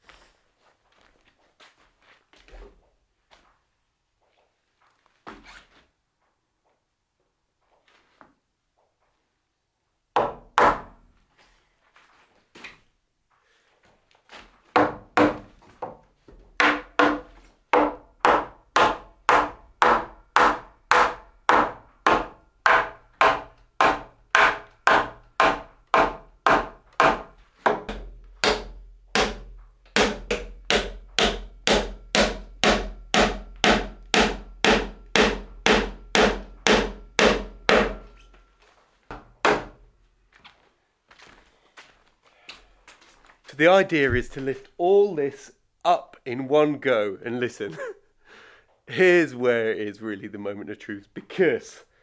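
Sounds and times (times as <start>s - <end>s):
mallet striking timber: 10.2s - 11.0s, 14.8s - 16.0s, 16.6s - 38.2s, 39.1s - 39.8s.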